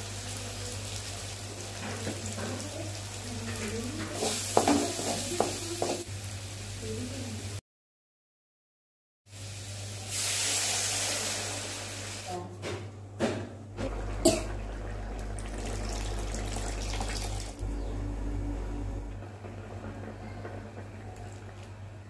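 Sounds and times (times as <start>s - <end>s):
water hissing in hot pan: 0.0s - 7.6s, 9.3s - 12.4s
steady low hum: 17.4s - 21.2s.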